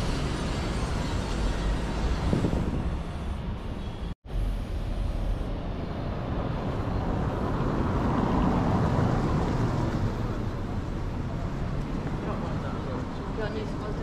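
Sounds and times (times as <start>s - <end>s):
motor vehicle passing by: 5.7s - 14.0s.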